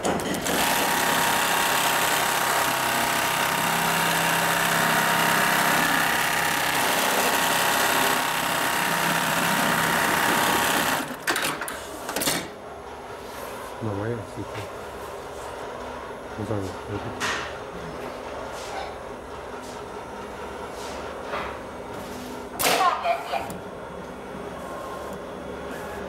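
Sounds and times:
sewing machine stitching: 0.0 - 11.4.

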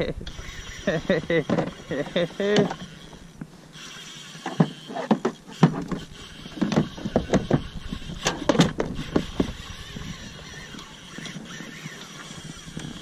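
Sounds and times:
fishing gear knocking and clattering: 4.4 - 13.0.

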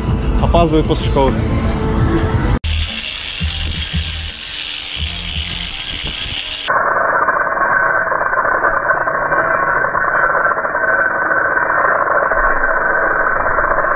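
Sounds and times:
angle grinder grinding concrete: 2.6 - 6.7.

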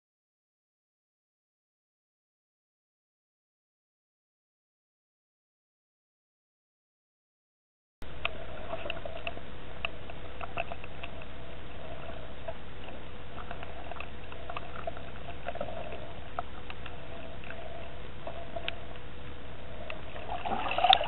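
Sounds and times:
faint steady whine: 8.0 - 21.0
underwater hum and hiss: 8.0 - 21.0.

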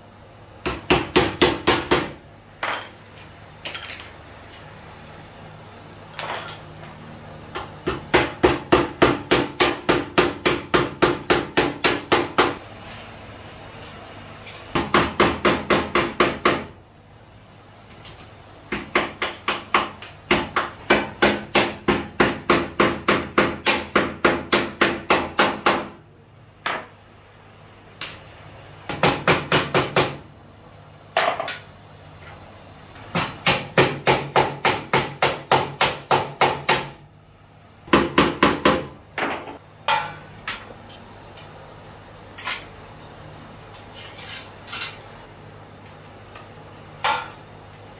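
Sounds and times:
rapid hammer strikes: 0.6 - 2.2, 7.6 - 12.6, 14.7 - 16.8, 18.7 - 26.0, 28.9 - 30.2, 33.1 - 37.0.

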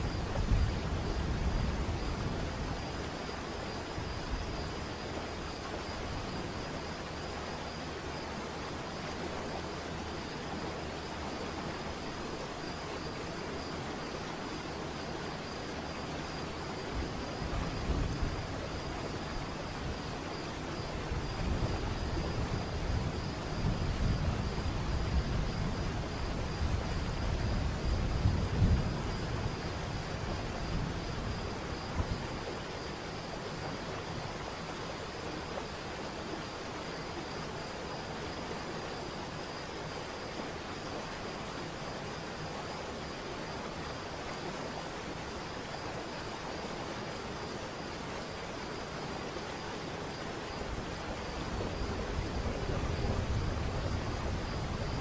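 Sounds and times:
rush of falling water: 28.9 - 55.0.

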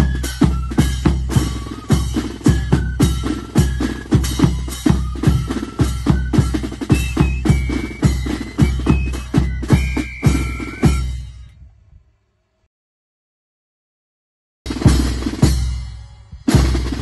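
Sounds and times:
snare drum: 0.0 - 11.2, 14.7 - 17.0
marching band playing: 0.0 - 11.3, 14.7 - 17.0.

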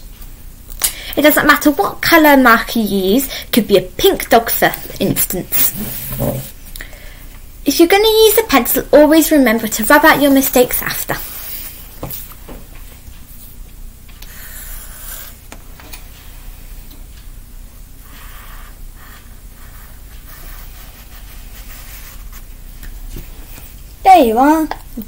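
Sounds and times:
marker scratching on paper: 4.8 - 6.5, 10.1 - 11.8, 14.3 - 15.4, 18.1 - 22.4.

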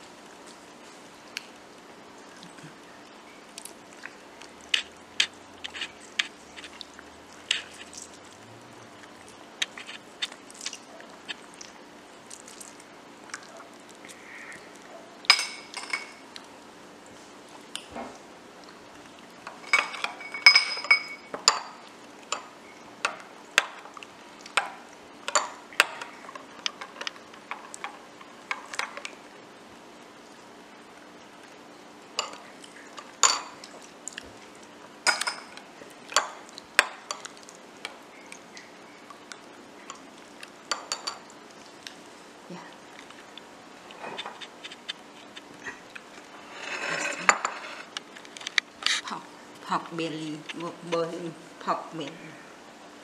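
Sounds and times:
metal spoon clinking glass bowl: 15.3 - 16.2, 19.6 - 21.7, 40.7 - 41.2.

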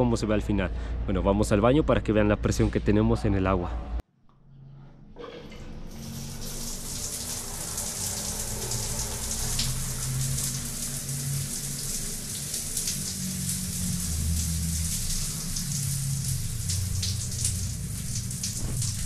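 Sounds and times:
shower water splashing on tiles: 5.9 - 19.0.

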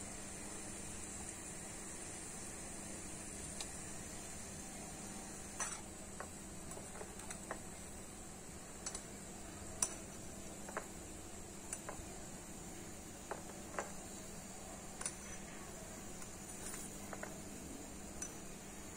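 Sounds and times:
oil sizzling faintly: 0.0 - 18.9
spoon clicking in pot: 8.8 - 9.1, 9.8 - 10.9, 15.0 - 15.3.

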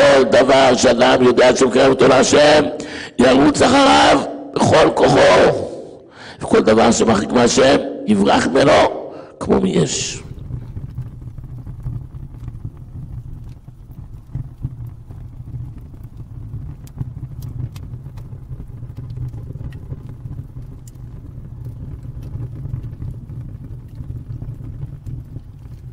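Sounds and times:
fire rumbling: 0.0 - 25.9
fire crackling and popping: 9.8 - 25.9.

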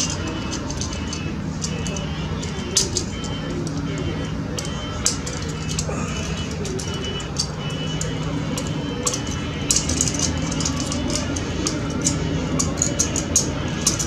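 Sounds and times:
background music: 0.0 - 14.0
feeler gauge ticking and scraping: 0.0 - 14.0.

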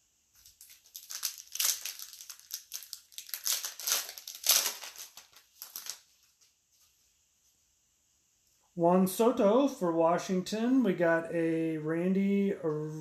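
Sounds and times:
wrapper crinkling: 0.4 - 6.5.

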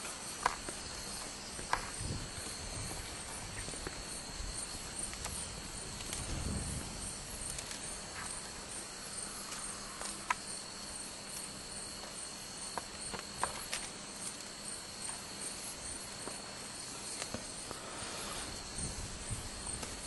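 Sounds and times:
high pulsing insect call: 0.0 - 20.0
insects trilling: 0.0 - 20.0.

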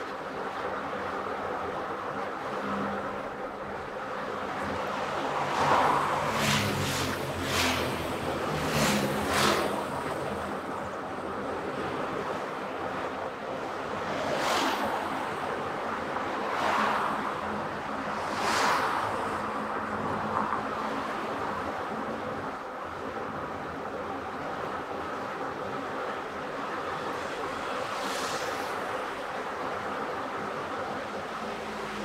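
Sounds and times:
car road and wind noise: 0.0 - 32.0.

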